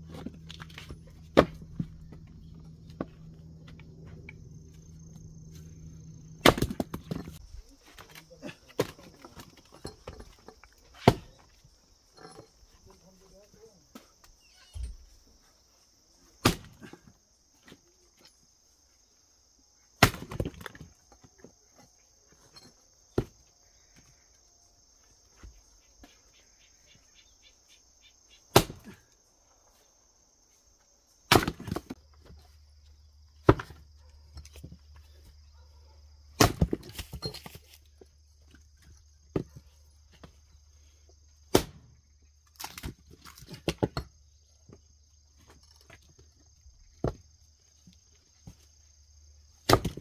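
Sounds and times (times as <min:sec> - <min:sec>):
axe splitting logs: 0:00.1 - 0:04.2, 0:06.2 - 0:11.5, 0:16.4 - 0:17.8, 0:20.0 - 0:21.2, 0:28.5 - 0:29.1, 0:31.3 - 0:32.4, 0:33.4 - 0:34.8, 0:36.4 - 0:37.8, 0:41.5 - 0:44.2, 0:49.6 - 0:50.0
split wood pieces clattering: 0:36.4 - 0:37.8, 0:42.4 - 0:44.2.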